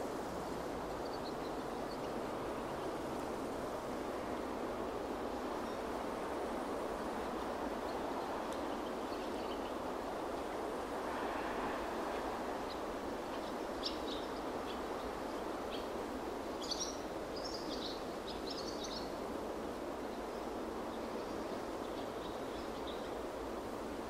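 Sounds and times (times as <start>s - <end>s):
steady rushing noise: 0.0s - 17.3s.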